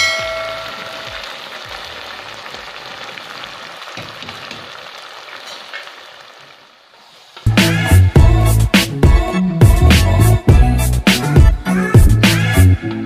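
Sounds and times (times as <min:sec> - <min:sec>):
food sizzling in a pan: 0:00.0 - 0:07.5.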